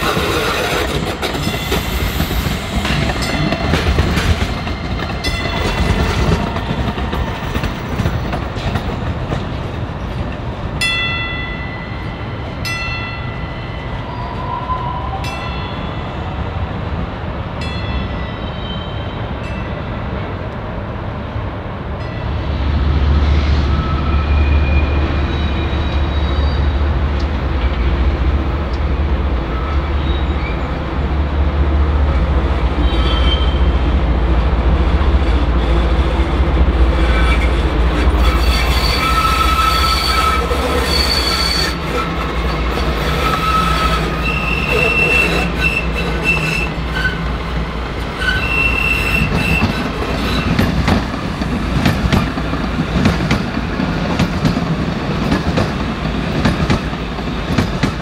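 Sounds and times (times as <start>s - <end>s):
train rumble: 0.0s - 58.0s
steel wheels squealing: 18.2s - 19.4s, 23.6s - 26.8s, 29.5s - 30.8s, 32.7s - 33.8s, 36.9s - 47.5s, 48.1s - 50.9s.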